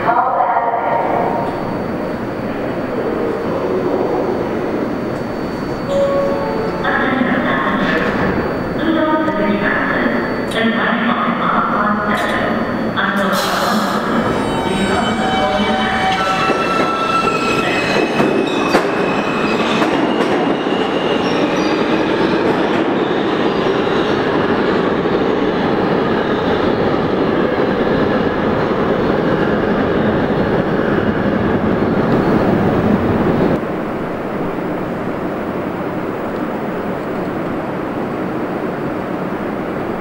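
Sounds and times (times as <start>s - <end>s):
station hum: 0.0s - 13.3s
high-pitched train whine: 0.0s - 40.0s
train wheels rumbling on track: 1.0s - 40.0s.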